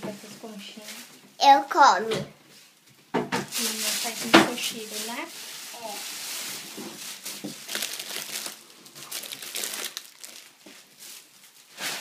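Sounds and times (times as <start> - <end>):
plastic bags crinkling: 3.5 - 12.0.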